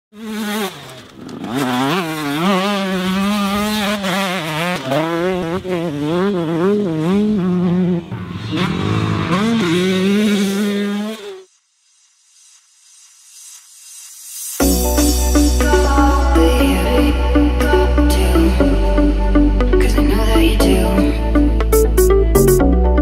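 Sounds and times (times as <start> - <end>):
motocross bike engine revving: 0.1 - 11.6.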